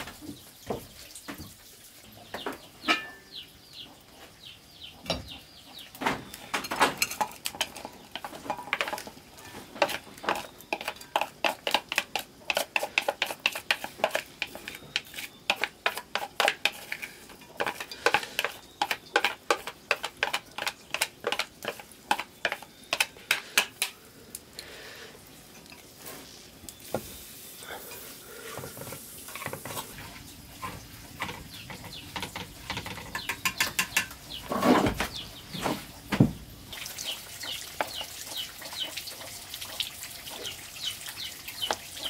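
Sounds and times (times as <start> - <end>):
wooden stick scraping metal pot: 7.0 - 23.9, 27.9 - 35.0.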